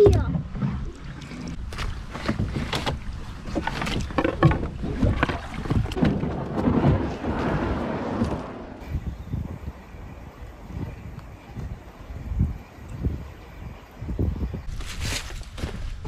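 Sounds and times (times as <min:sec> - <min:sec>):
hull scraping over stones: 0:01.2 - 0:09.0
knocks and clatters on stones: 0:01.7 - 0:07.1.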